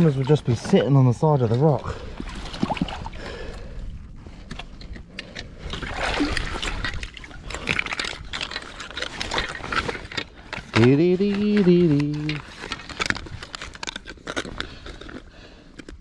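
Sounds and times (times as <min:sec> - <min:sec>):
seawater splashing and trickling: 0:00.0 - 0:03.6, 0:05.6 - 0:10.2.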